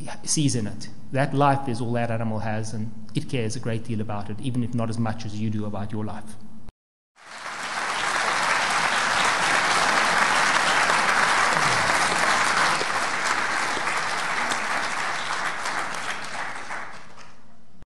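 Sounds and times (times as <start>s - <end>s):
audience applauding: 7.2s - 17.4s.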